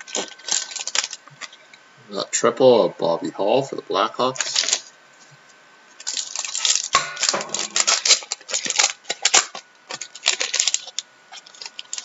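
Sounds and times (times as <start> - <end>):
foil wrappers crinkling: 0.0 - 1.7, 4.2 - 4.9, 5.9 - 12.0.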